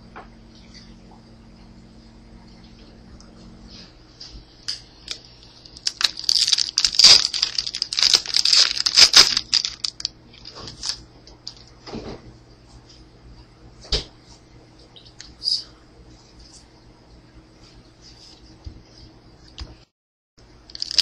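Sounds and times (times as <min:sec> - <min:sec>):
foil wrapper tearing and crinkling: 0:05.1 - 0:11.6, 0:20.7 - 0:21.0.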